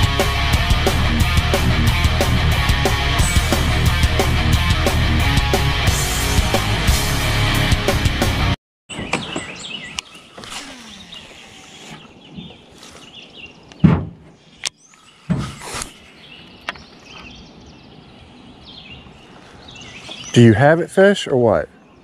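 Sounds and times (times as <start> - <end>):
small birds chirping: 8.9 - 22.0
knocks and thumps: 13.8 - 14.4.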